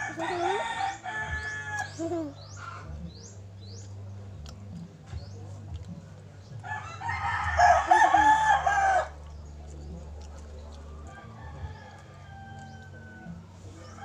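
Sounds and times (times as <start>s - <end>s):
rooster crowing: 0.0s - 2.0s, 6.7s - 9.2s, 11.1s - 14.0s
low steady hum: 0.0s - 14.0s.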